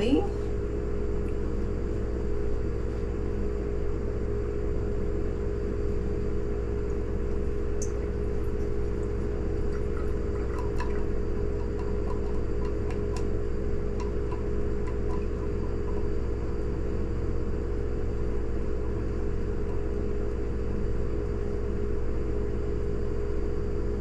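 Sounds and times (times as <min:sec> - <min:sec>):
steady low hum: 0:00.0 - 0:24.0
liquid trickling into bottle: 0:07.8 - 0:13.3.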